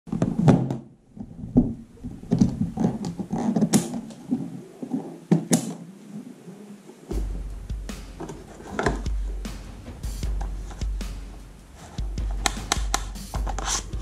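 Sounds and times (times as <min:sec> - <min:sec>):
knocks and rubbing on carry case: 0:08.2 - 0:09.2, 0:11.8 - 0:14.0.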